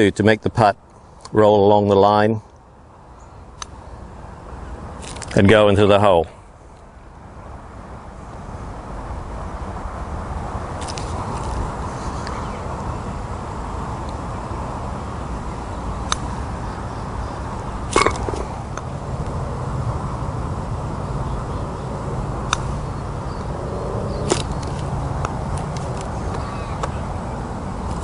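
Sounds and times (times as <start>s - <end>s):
low outdoor rumble: 2.2s - 28.0s
golf ball dropping into cup: 18.0s - 18.6s.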